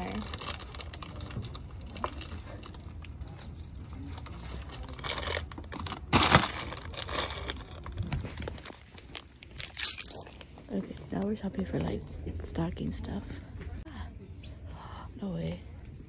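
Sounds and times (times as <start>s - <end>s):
plastic packaging crinkling: 0.0s - 2.7s, 4.4s - 10.5s.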